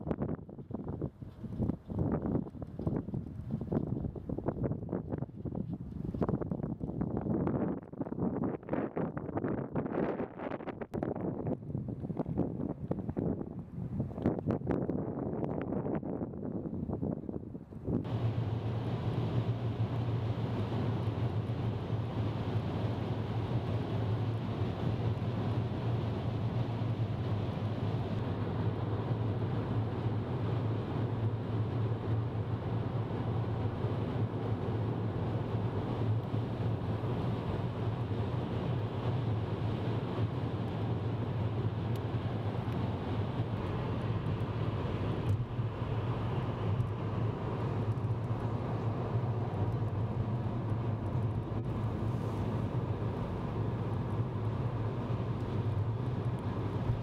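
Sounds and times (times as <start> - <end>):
tyre road noise: 0.1 - 9.7, 10.3 - 57.0
car engine drone: 18.0 - 57.0.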